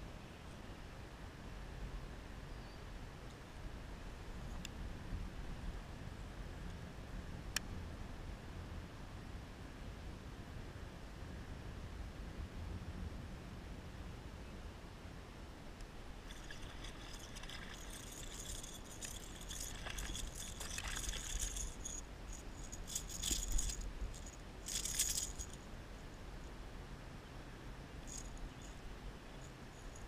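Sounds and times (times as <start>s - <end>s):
fishing tackle rattling: 16.3s - 25.6s.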